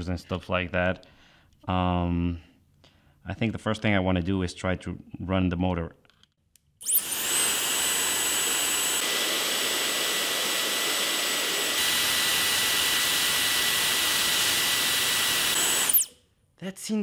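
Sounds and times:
hair dryer motor whining: 6.8s - 16.1s.

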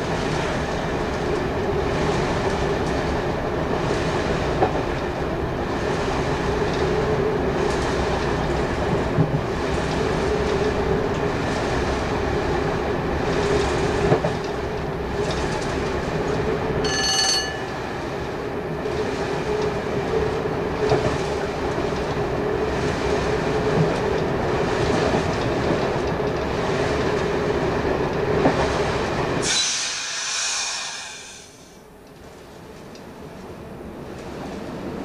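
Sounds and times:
wheels on rails: 0.0s - 29.6s
diesel train engine drone: 0.0s - 35.0s
rail-joint clicks: 0.1s - 5.3s, 6.0s - 12.2s, 13.2s - 18.1s, 18.8s - 34.7s
high metallic squeal: 16.8s - 17.8s
high whistle-like tone: 16.9s - 17.7s.

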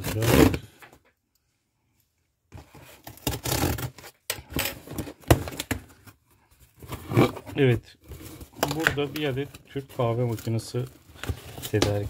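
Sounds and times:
cardboard scraping and tearing: 0.0s - 0.7s, 2.6s - 5.6s, 6.8s - 9.2s.

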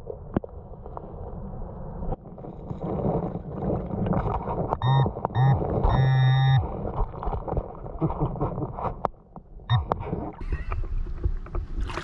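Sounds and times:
water splashing: 2.3s - 12.0s
muffled underwater gurgling: 2.7s - 9.1s.

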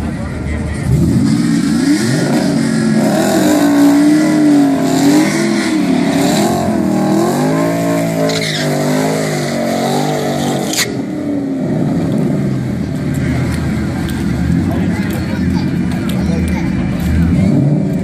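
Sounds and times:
car engine revving high: 0.7s - 16.2s, 16.8s - 18.0s
tyres squealing: 8.0s - 11.0s.

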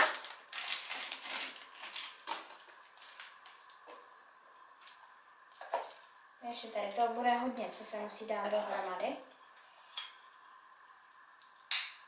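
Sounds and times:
plastic bag crinkling: 0.0s - 3.8s.

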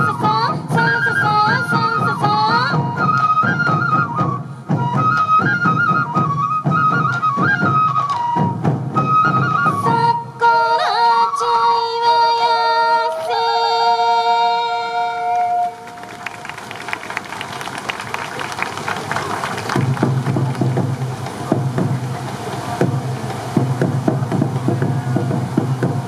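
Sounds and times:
bamboo flute melody: 0.0s - 26.0s
taiko drums beating: 0.1s - 10.2s, 16.2s - 26.0s.

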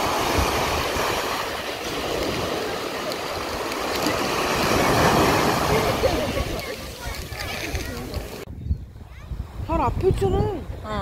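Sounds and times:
sea waves breaking on beach: 0.0s - 8.5s.

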